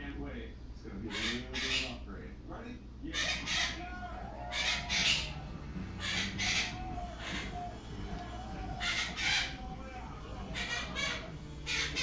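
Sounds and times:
parrot harsh squawks: 0:01.1 - 0:02.0, 0:03.1 - 0:09.8, 0:10.4 - 0:12.0.

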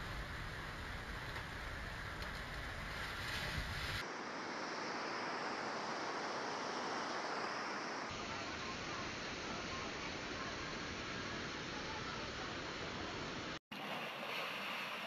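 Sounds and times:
rushing floodwater roar: 0:04.0 - 0:15.0.

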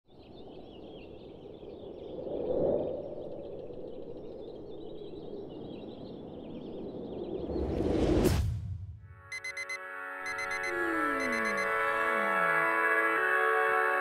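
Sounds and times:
birds chirping and twittering: 0:00.1 - 0:02.2, 0:02.8 - 0:07.7.

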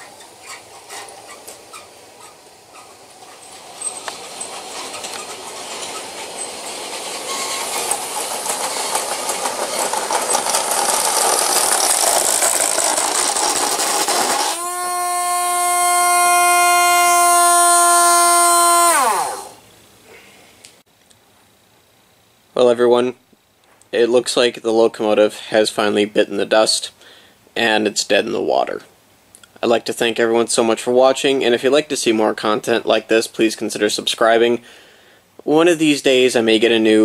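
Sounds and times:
model train clattering on rails: 0:02.4 - 0:14.6
loud steady tone: 0:14.5 - 0:19.6.

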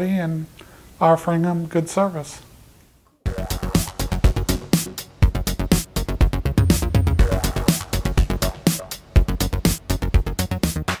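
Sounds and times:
electronic music with drum beat: 0:03.3 - 0:11.0.

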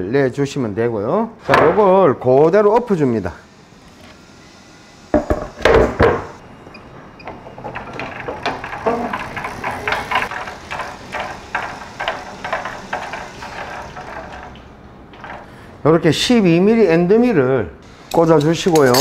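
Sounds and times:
board knocking on wooden table: 0:05.2 - 0:06.3.

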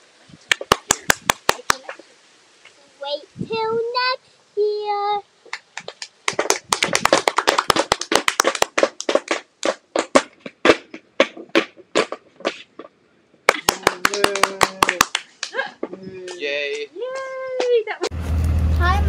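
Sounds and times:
tap shoes clicking on wood: 0:08.5 - 0:13.0.

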